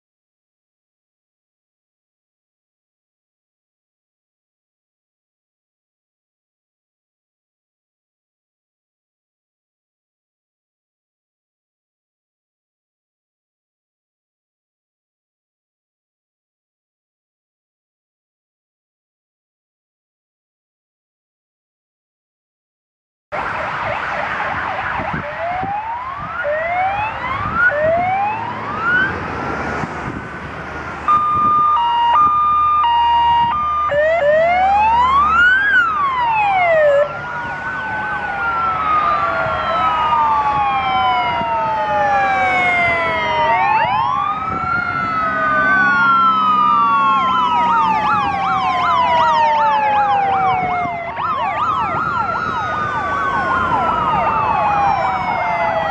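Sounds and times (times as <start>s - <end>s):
two-tone hi-lo siren: 23.3s - 29.8s, 31.0s - 55.9s
electronic sirens wailing: 23.3s - 29.9s, 30.9s - 55.9s.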